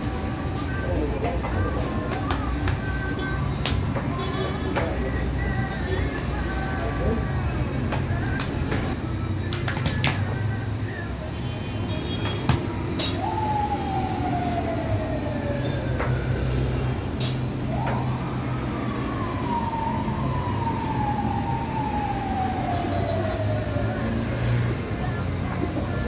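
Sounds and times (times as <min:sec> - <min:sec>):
siren wailing: 0:12.8 - 0:25.4.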